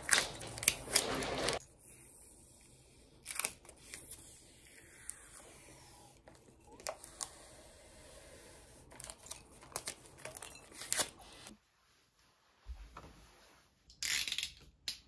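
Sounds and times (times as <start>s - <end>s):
paper label tearing and crinkling: 0.0s - 1.6s, 3.2s - 7.6s, 8.8s - 11.5s.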